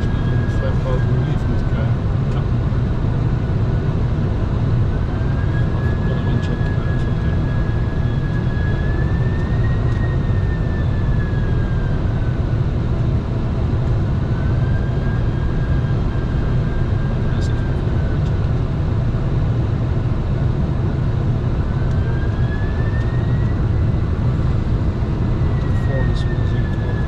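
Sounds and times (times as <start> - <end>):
jet engines and airflow rumbling: 0.0 - 27.0
faint high whine: 21.5 - 27.0.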